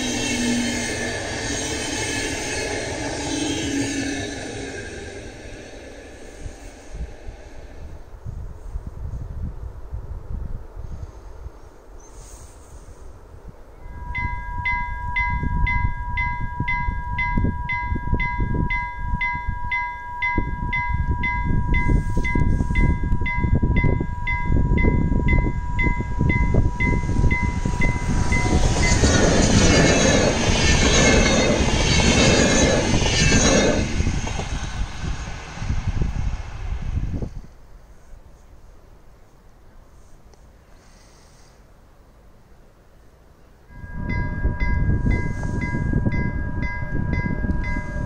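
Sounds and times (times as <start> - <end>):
railway warning bell ringing: 13.8 - 34.2, 43.6 - 48.0
train wheels clattering on rails: 25.9 - 35.2.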